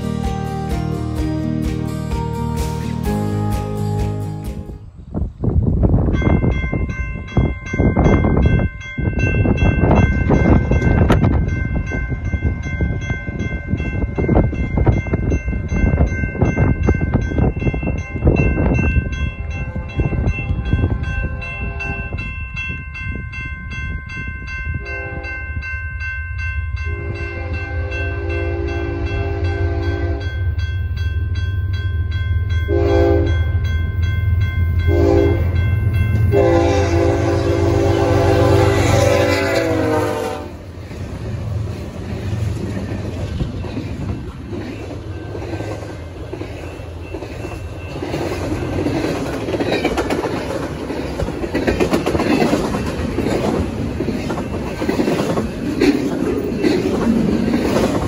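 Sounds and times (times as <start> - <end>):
crossing warning bell ringing: 0.0 - 5.0, 5.8 - 58.0
locomotive air horn blasts: 19.6 - 22.2, 24.8 - 25.4, 26.9 - 30.3, 32.7 - 33.4, 34.9 - 35.6, 36.3 - 40.7.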